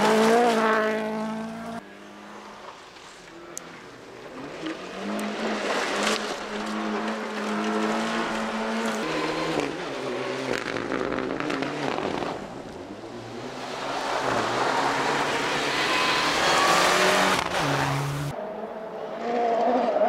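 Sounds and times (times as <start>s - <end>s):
rally car engine revving hard: 4.3s - 12.5s, 13.1s - 18.3s.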